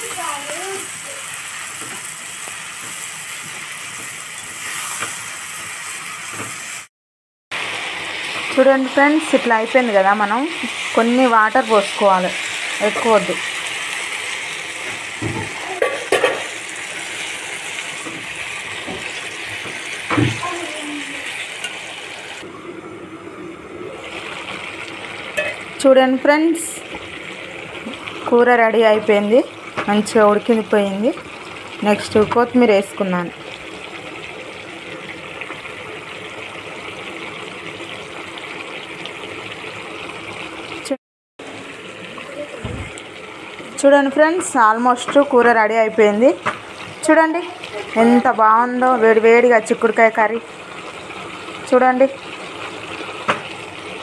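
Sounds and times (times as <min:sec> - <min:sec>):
curry sizzling in pan: 0:00.0 - 0:06.9, 0:07.5 - 0:22.6, 0:23.8 - 0:54.0
steel lid on pan: 0:25.4 - 0:25.6
curry bubbling in a pan: 0:26.8 - 0:40.9, 0:46.3 - 0:54.0.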